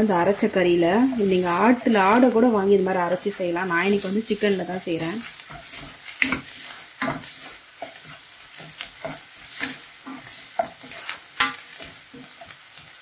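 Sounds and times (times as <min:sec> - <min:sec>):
onions sizzling in oil: 0:00.0 - 0:13.0
spatula scraping a pan: 0:03.8 - 0:13.0.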